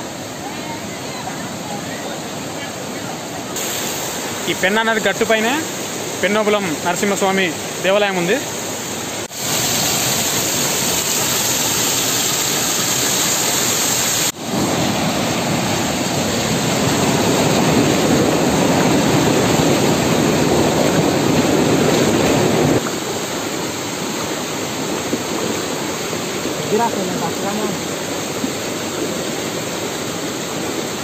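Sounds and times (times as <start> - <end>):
whitewater rushing over rocks: 0.0 - 31.0.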